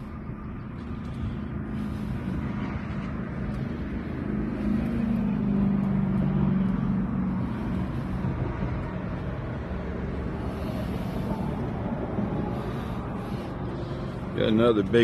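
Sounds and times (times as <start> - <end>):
boat motor humming: 0.0 - 15.0.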